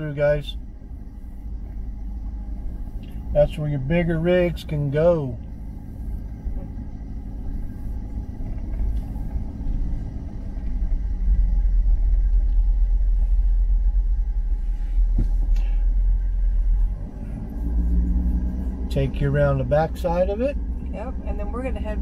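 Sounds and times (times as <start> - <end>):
car engine and tyre rumble: 0.0 - 22.0.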